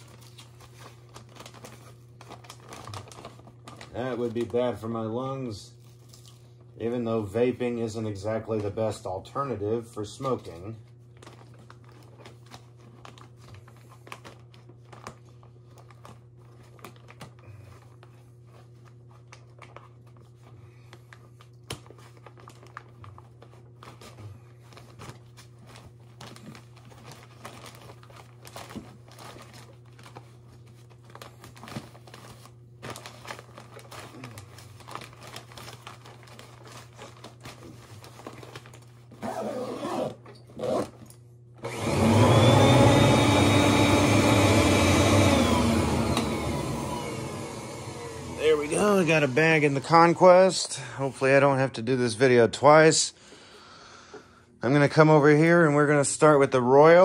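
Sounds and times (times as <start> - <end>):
paper bag rustling: 0.0 - 41.1, 43.2 - 51.3
vacuum cleaner motor running: 39.2 - 50.5.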